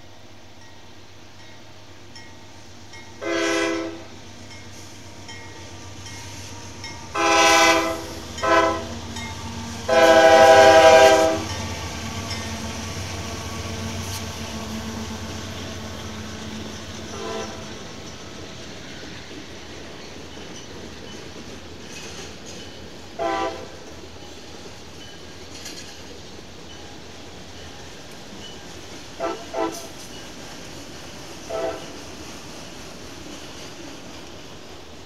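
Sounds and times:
train rumbling: 0.0 - 35.0
locomotive air horn blasts: 3.2 - 4.1, 7.1 - 9.0, 9.9 - 11.5, 17.1 - 17.7, 23.2 - 23.7, 29.2 - 29.9, 31.5 - 31.9.

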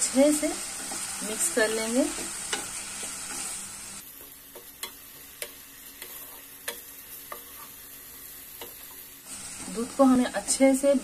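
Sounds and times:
faint sizzle: 0.0 - 11.0
wooden spatula scraping pan: 5.9 - 9.0.

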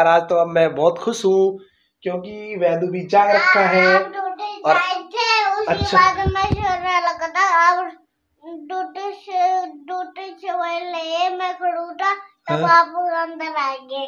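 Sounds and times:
young child singing: 3.2 - 14.0.

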